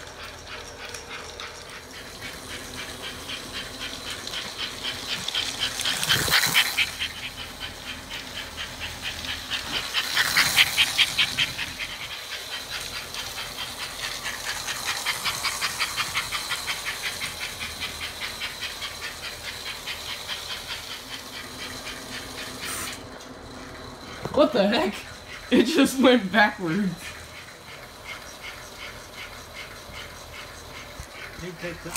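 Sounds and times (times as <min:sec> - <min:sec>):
toy train clicking clatter: 0:00.0 - 0:31.9.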